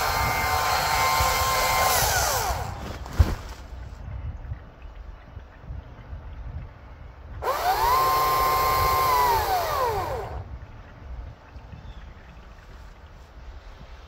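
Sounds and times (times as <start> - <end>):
chainsaw revving: 0.0 - 2.8, 7.4 - 10.4.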